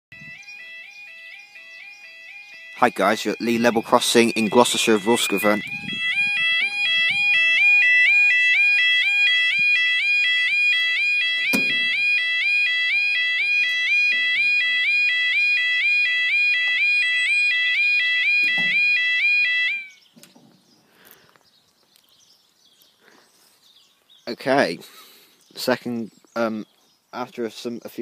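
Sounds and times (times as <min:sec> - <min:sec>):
level crossing alarm warbling: 0:00.1 - 0:20.1
sharp knock: 0:11.4 - 0:12.0.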